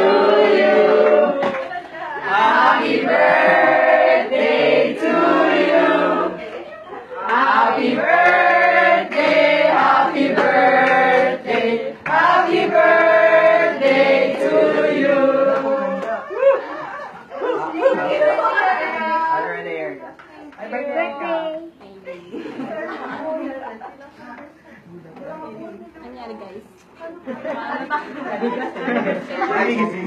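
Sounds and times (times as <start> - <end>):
people singing in chorus: 0.0 - 6.6, 7.2 - 16.2.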